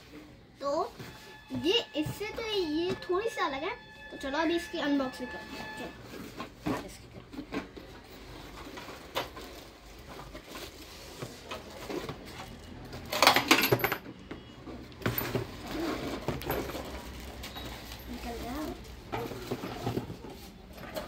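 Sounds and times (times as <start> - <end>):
clicks and knocks of boxes: 19.0 - 21.0.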